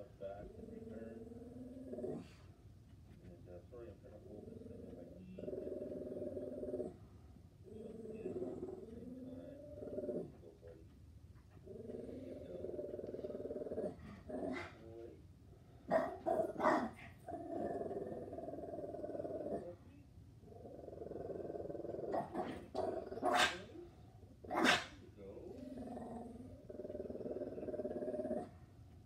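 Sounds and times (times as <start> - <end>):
dog growling: 0.0 - 2.5, 3.4 - 10.9, 11.5 - 15.1, 15.9 - 28.6
dog barking: 15.9 - 17.0, 23.2 - 23.7, 24.5 - 25.0.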